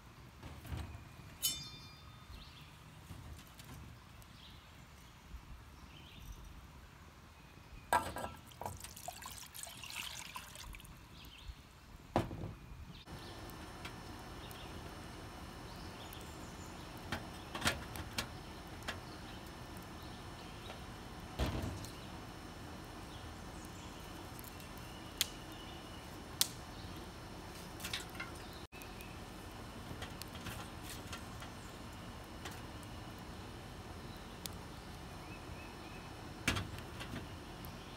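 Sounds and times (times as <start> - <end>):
fire hissing: 13.0 - 37.9
wood fire crackling: 13.0 - 37.9.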